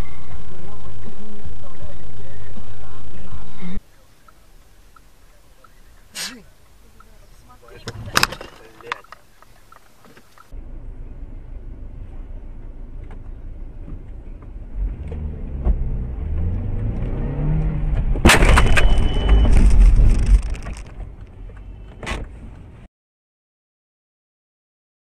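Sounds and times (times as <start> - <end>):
vehicle engine and road noise: 0.0 - 22.9
loud crash impact: 18.2 - 20.9.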